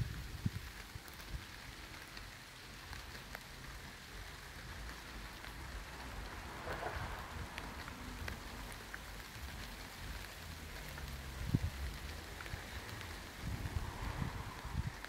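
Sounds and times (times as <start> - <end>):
rain falling: 0.0 - 15.0
low thunder rumble: 5.5 - 9.0, 11.4 - 15.0.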